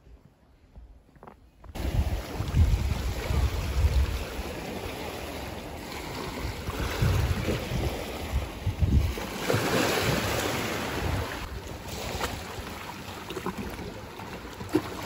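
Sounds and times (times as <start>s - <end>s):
wind buffeting microphone: 1.6s - 12.7s
sea waves: 1.8s - 15.0s.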